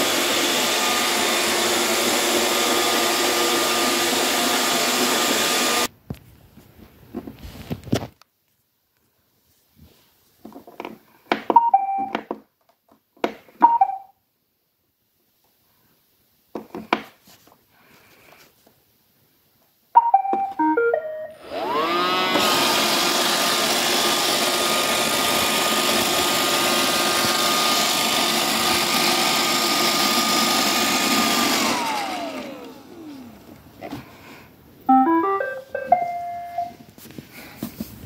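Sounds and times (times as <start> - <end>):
vacuum motor whining: 0.0 - 5.9, 21.3 - 34.1
robot vacuum beep tune: 11.6 - 12.2, 13.6 - 14.1, 20.0 - 22.0, 34.9 - 36.8.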